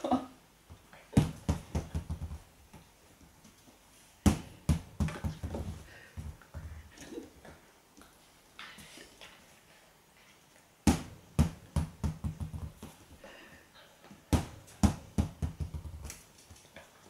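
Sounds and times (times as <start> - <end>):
ball bouncing on wooden floor: 1.2 - 2.9, 4.2 - 6.8, 10.9 - 13.1, 14.3 - 16.2.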